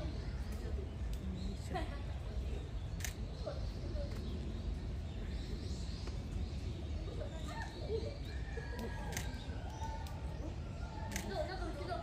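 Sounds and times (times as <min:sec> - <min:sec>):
small sharp clicks: 0:03.0 - 0:03.2.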